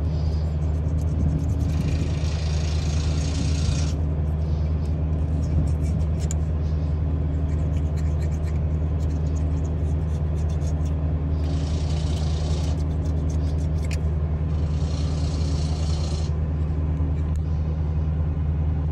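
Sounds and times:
low engine drone: 0:00.0 - 0:18.9
razor blade scraping silicone: 0:00.6 - 0:04.0, 0:05.3 - 0:06.4, 0:07.4 - 0:14.0.

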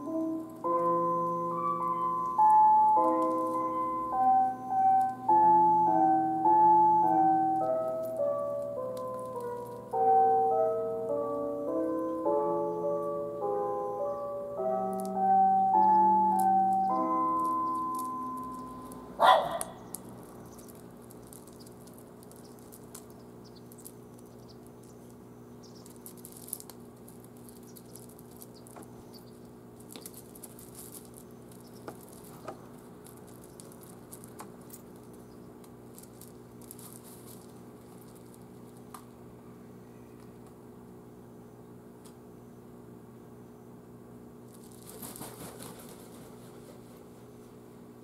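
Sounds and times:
steady low hum: 0:00.0 - 0:48.0
crows pecking on gravel: 0:00.1 - 0:00.7, 0:02.2 - 0:03.7, 0:07.6 - 0:10.0, 0:16.3 - 0:39.2, 0:44.5 - 0:46.8.

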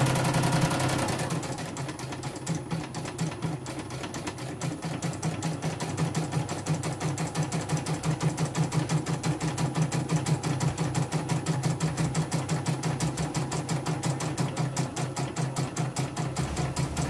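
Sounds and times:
low motor hum: 0:16.2 - 0:17.0.

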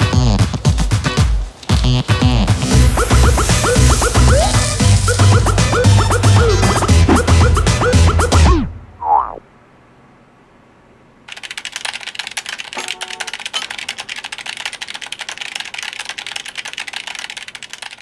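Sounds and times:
faint hum: 0:01.8 - 0:12.4
fast typing on keyboard: 0:11.3 - 0:18.0.

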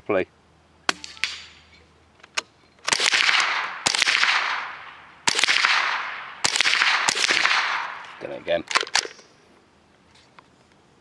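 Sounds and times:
rifle shots with echo: 0:02.9 - 0:09.2.

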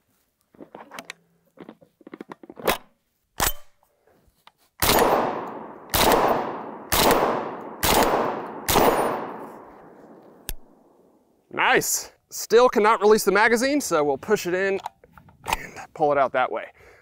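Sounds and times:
shotgun shots echoing: 0:04.8 - 0:11.1.

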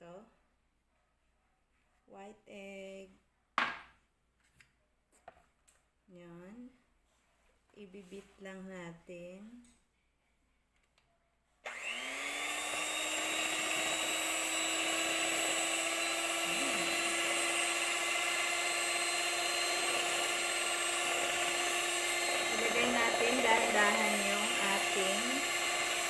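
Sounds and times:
electric hand mixer whine: 0:11.7 - 0:26.0.

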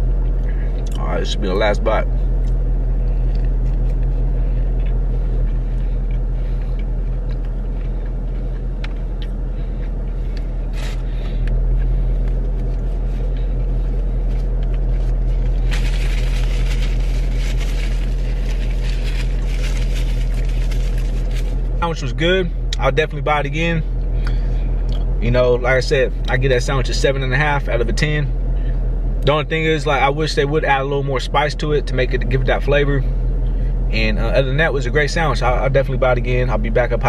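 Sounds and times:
car idling hum: 0:00.0 - 0:37.0
chewing food: 0:02.4 - 0:10.6
paper napkin rustling: 0:14.2 - 0:21.7.

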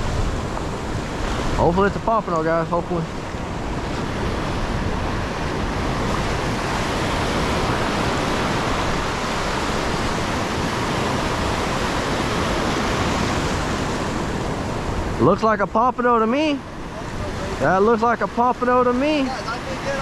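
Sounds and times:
surf breaking on beach: 0:00.0 - 0:20.0.

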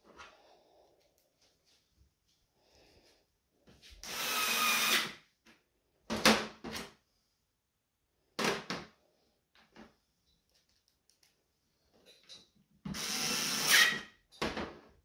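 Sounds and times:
electric screwdriver running: 0:04.1 - 0:05.1, 0:13.0 - 0:14.0.

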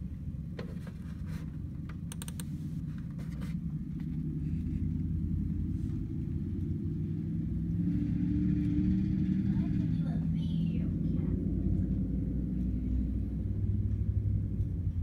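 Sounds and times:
pickup truck engine rumble: 0:00.0 - 0:15.0
sharp clicks: 0:01.9 - 0:02.5.

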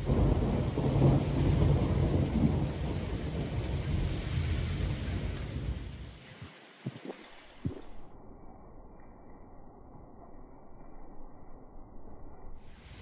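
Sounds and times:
thunder rumbling: 0:00.0 - 0:06.1
rain hiss: 0:00.0 - 0:08.2, 0:12.6 - 0:13.0.

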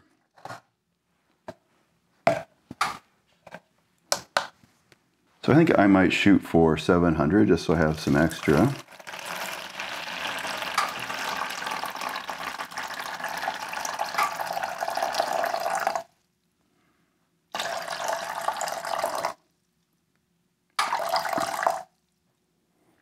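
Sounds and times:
water pouring into plastic tub: 0:07.8 - 0:16.1, 0:17.5 - 0:19.4, 0:20.8 - 0:21.9.

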